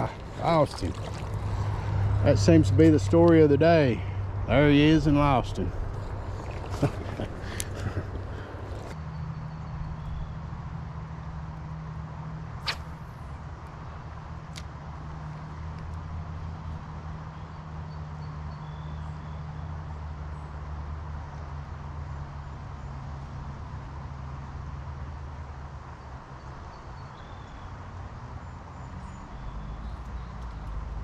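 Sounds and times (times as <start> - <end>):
even hiss: 12.6 - 13.2.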